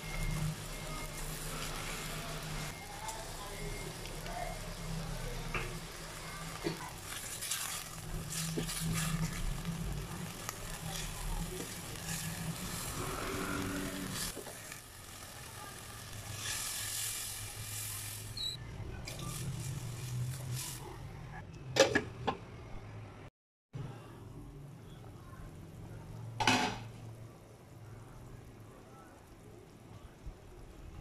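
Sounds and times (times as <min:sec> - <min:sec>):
chicken sizzling in oil: 0:00.0 - 0:21.0.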